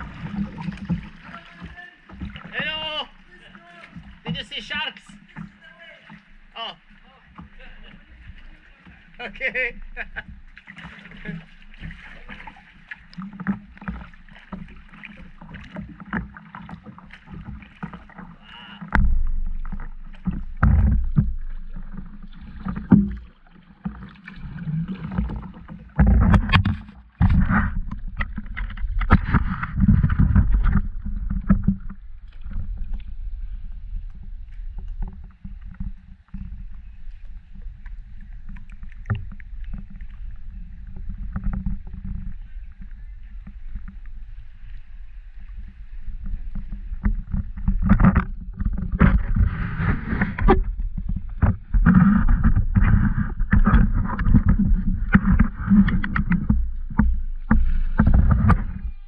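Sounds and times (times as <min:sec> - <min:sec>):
paddle splashes: 0:00.0 - 0:59.0
camera thumping against hull: 0:18.8 - 0:23.3, 0:25.2 - 0:33.0, 0:46.5 - 0:59.0
knocks on plastic hull: 0:18.9 - 0:23.3, 0:47.0 - 0:59.0.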